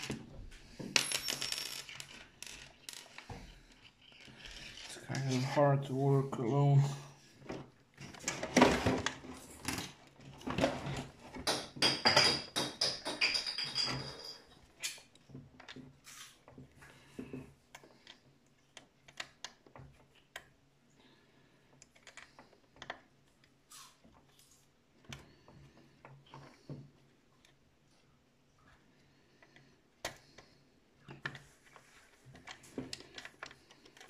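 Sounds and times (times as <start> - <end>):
plastic parts clicking and rattling: 1.1 - 5.4, 7.4 - 20.6, 21.8 - 24.4, 29.4 - 34.0.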